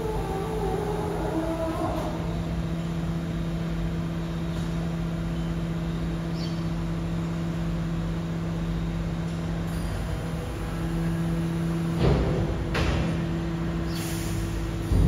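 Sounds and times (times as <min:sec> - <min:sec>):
electric truck humming: 0:00.0 - 0:03.6.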